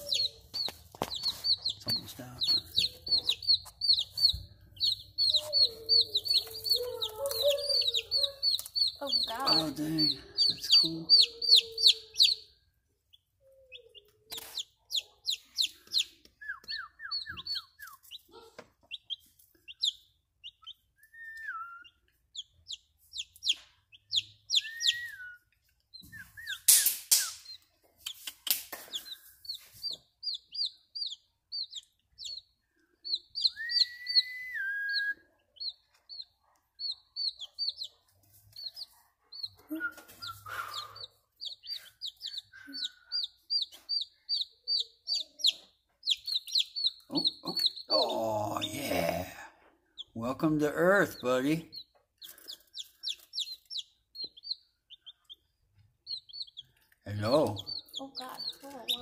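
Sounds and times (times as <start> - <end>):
chicks peeping: 0.0 - 59.0
lower sliding chick calls: 2.4 - 12.4, 22.3 - 25.3, 33.1 - 36.2.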